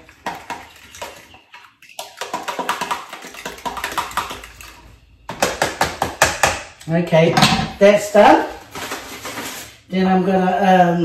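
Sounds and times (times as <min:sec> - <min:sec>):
fork beating eggs in container: 0:00.0 - 0:06.6.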